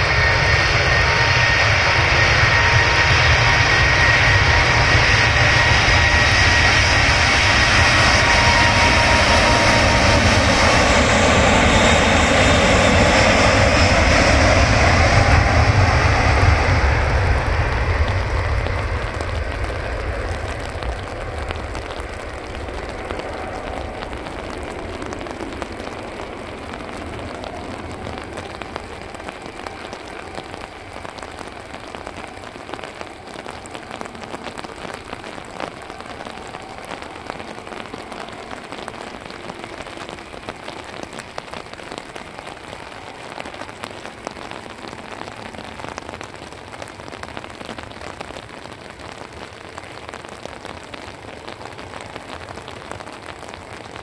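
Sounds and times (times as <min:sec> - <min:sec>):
jet engines rumbling: 0:00.0 - 0:54.0
rain drops tapping: 0:00.0 - 0:54.0.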